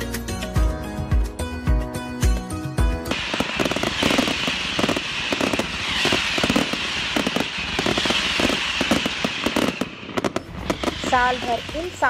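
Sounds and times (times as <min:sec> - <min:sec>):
fireworks crackling: 0:03.1 - 0:12.0.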